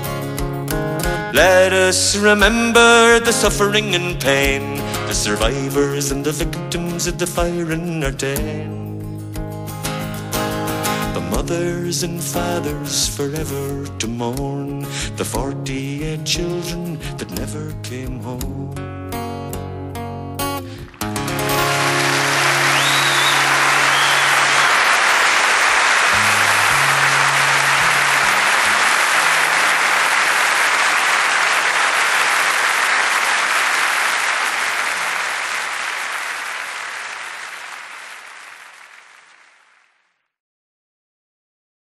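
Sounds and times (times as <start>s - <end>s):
audience applauding: 20.7s - 40.2s
whistle: 21.8s - 25.4s
acoustic guitar notes ringing: 26.1s - 28.9s.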